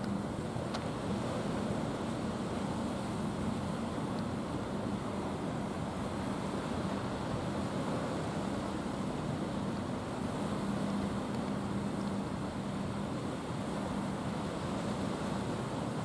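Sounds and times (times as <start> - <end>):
motorboat engine humming: 0.0 - 16.0
water noise: 0.0 - 16.0
wind: 0.0 - 16.0.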